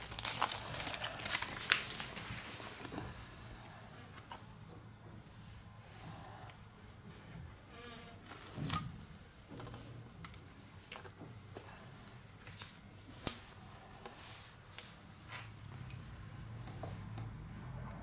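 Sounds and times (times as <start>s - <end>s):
adhesive tape peeling rustle: 0.0s - 2.4s.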